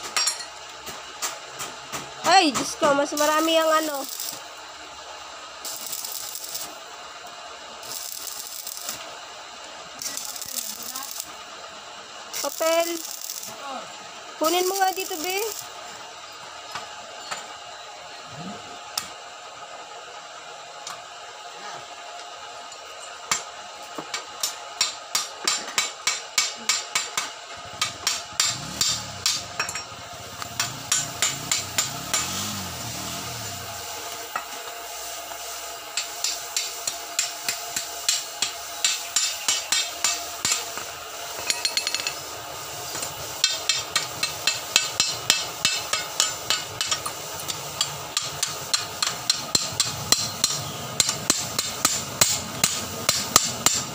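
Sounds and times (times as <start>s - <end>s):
chipping hammer striking steel: 24.8s - 32.5s, 43.4s - 53.9s.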